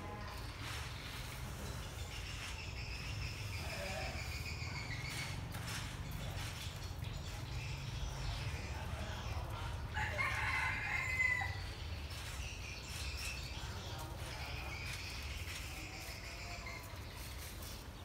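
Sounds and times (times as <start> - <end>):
rooster crowing: 9.9 - 11.8.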